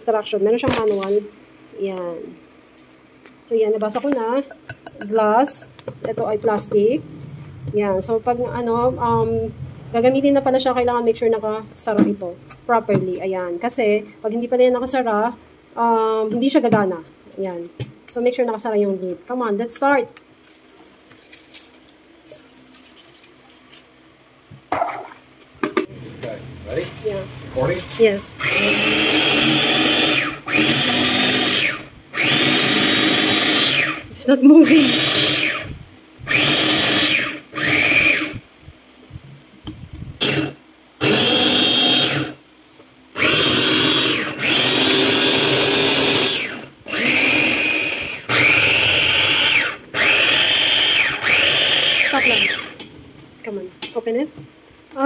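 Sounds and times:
food processor motor whine: 27.6s - 38.4s, 40.2s - 42.4s, 43.2s - 52.8s.

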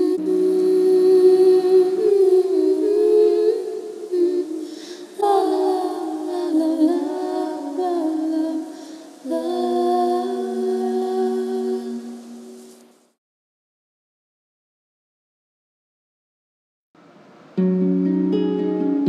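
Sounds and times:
person humming slow melody: 0.0s - 12.6s.

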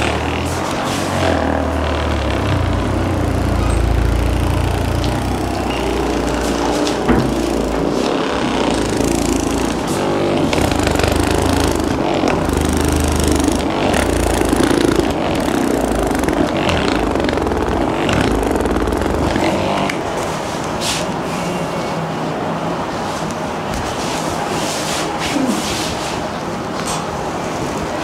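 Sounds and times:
massage gun motor buzzing: 0.0s - 20.2s.

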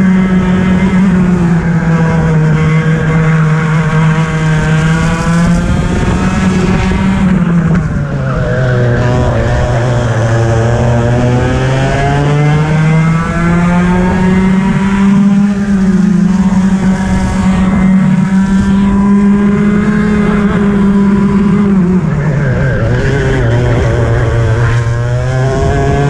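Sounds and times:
kart engine at full throttle: 0.0s - 26.0s.

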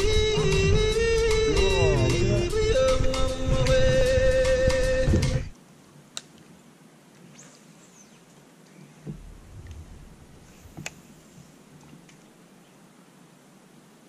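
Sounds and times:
background music: 0.0s - 5.5s
faint high bird calls: 7.3s - 9.1s
soft low rumble: 9.0s - 12.1s.

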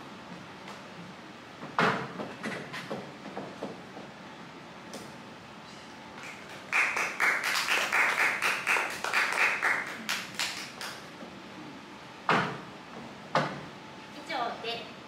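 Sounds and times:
audience clapping: 6.2s - 11.1s.

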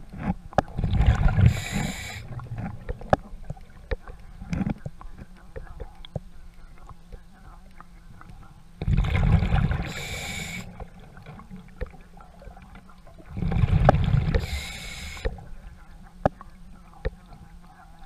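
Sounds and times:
diver breathing through regulator: 1.3s - 2.4s, 9.6s - 10.9s, 13.3s - 15.5s.

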